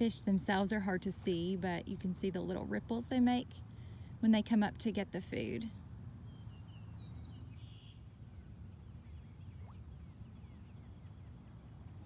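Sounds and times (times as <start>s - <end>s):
low steady rumble: 0.0s - 12.0s
distant bird chirps: 6.2s - 12.0s.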